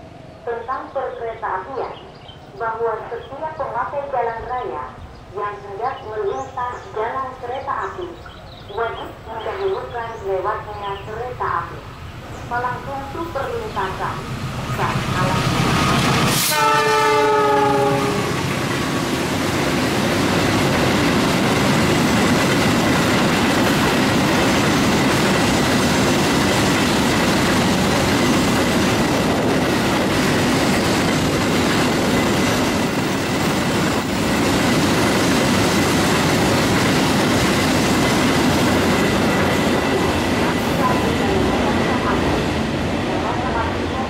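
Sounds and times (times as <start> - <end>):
locomotive horn blast: 14.8 - 18.5
train wheels clattering on rails: 18.3 - 42.6.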